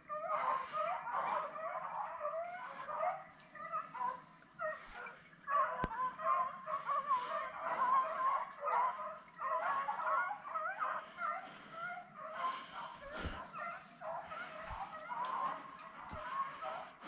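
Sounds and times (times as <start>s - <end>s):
hounds baying: 0.0s - 17.0s.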